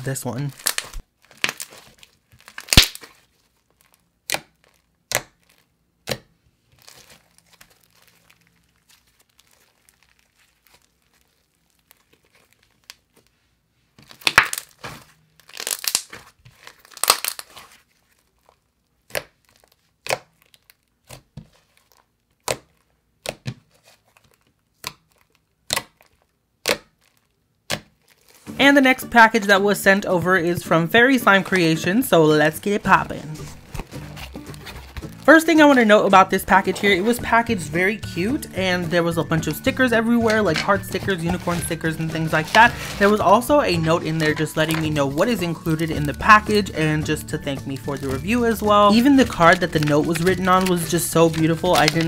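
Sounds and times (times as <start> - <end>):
slime clicking and popping: 2.4 - 3.2, 4.2 - 6.3, 14.1 - 14.8, 15.4 - 17.5, 24.8 - 28.0.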